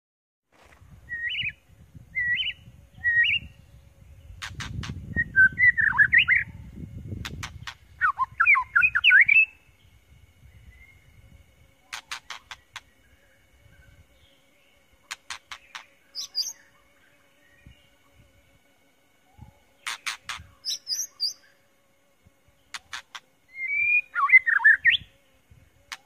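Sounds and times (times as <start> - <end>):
bird singing whistled notes: 1.0 - 3.7, 5.0 - 6.7, 7.4 - 11.2, 15.5 - 17.8, 19.3 - 21.6, 23.5 - 25.2
bird sharp clicks: 11.9 - 12.9, 15.1 - 16.5, 19.8 - 21.0, 22.7 - 23.2.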